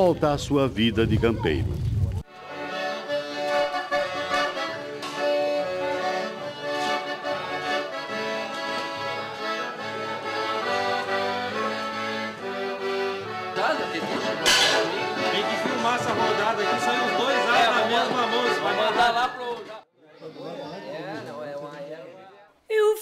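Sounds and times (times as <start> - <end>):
accordion dance music: 2.3 - 19.9.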